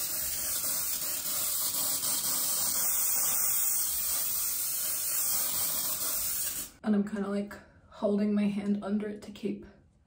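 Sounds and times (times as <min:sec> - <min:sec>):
hairspray hissing: 0:00.0 - 0:06.8.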